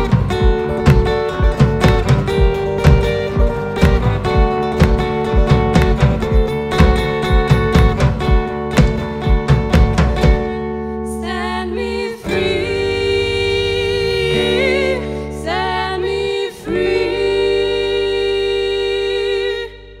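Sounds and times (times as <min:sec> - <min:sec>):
drum hits: 0:00.0 - 0:10.6
sustained guitar and bass chord: 0:00.0 - 0:16.1
women singing with vibrato: 0:11.0 - 0:20.0.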